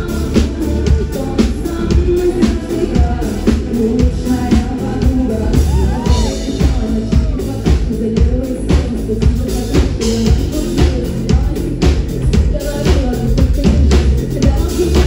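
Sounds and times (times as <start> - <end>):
woman singing into a microphone: 0.0 - 15.0.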